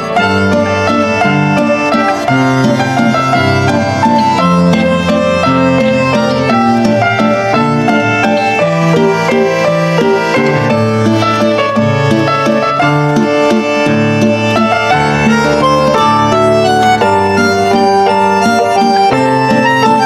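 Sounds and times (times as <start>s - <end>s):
busy instrumental background music: 0.0s - 20.0s.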